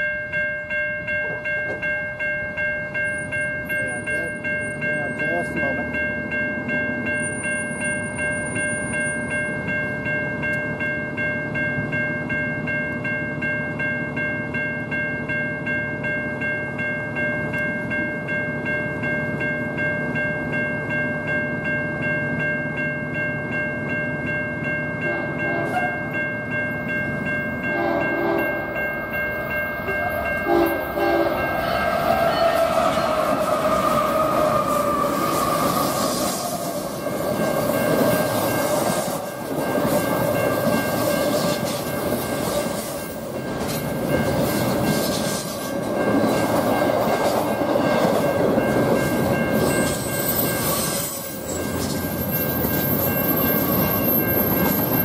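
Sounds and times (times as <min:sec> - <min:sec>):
held ringing tone: 0:00.0 - 0:42.4
freight train rumble: 0:00.0 - 0:55.0
locomotive horn blasts: 0:25.0 - 0:26.1, 0:27.7 - 0:28.7, 0:29.9 - 0:33.5.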